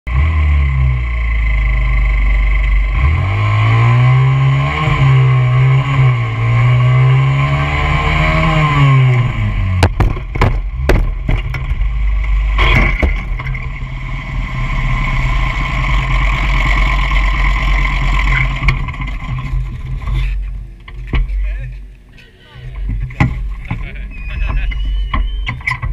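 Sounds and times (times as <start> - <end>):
dirt bike engine revving: 0.1 - 20.4
motorbike crashing onto pavement: 9.8 - 11.9, 12.6 - 13.8.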